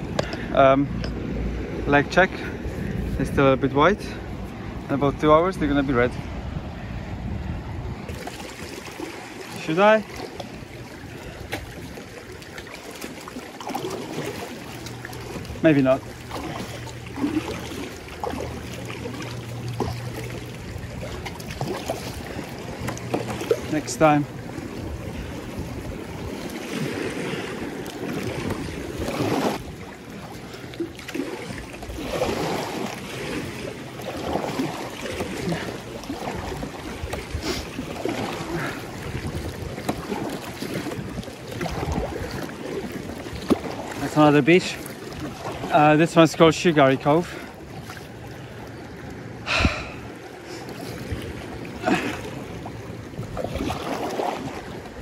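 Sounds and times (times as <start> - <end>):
wind on microphone: 0.0 - 9.3, 20.6 - 30.0, 35.4 - 43.7, 49.5 - 50.1, 53.0 - 55.0
water sloshing around a kayak: 0.0 - 55.0.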